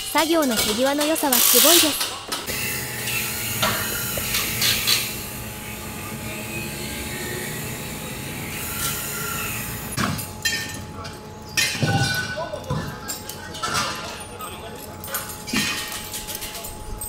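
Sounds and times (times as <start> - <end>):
steady hum: 0.0 - 11.8.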